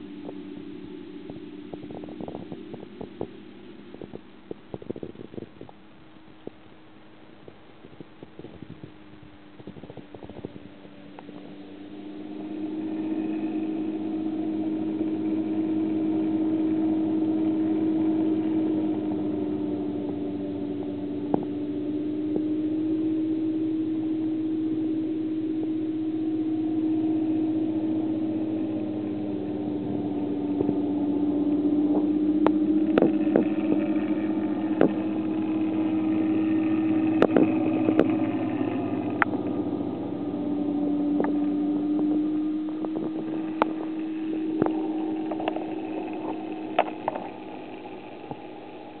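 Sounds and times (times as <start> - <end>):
aquarium pumps humming: 0.0 - 49.0.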